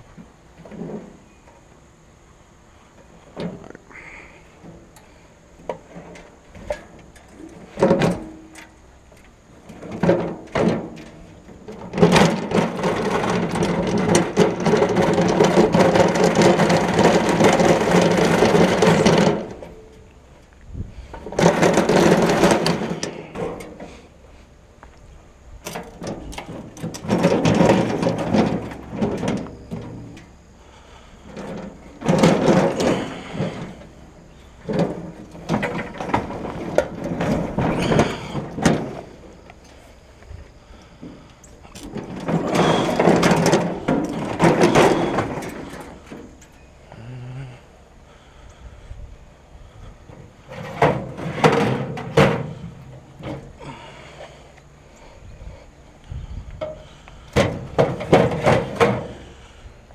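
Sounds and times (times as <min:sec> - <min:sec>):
casters rolling on pavement: 0:00.0 - 0:59.9
metal grill body rattling: 0:09.6 - 0:20.0, 0:21.1 - 0:24.0, 0:25.6 - 0:30.3, 0:31.3 - 0:39.4, 0:41.7 - 0:46.6, 0:50.4 - 0:53.5, 0:56.6 - 0:59.3.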